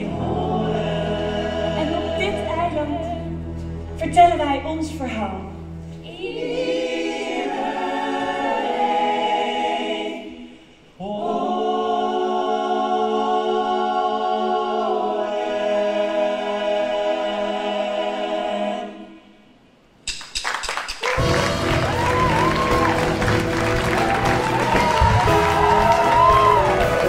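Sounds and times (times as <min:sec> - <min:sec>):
ensemble singing chords: 0:00.0 - 0:19.4
applause: 0:20.3 - 0:27.0.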